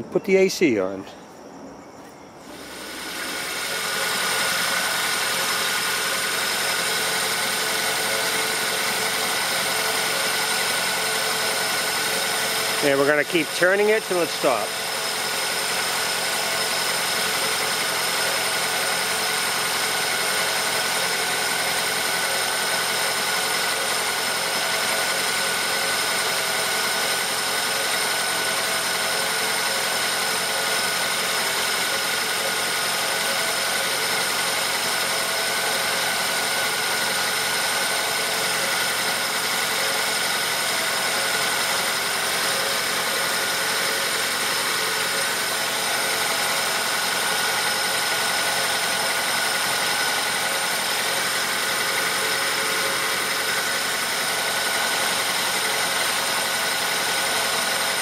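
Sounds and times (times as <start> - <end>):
air conditioning running: 0.0 - 19.6
car engine idling: 2.4 - 58.0.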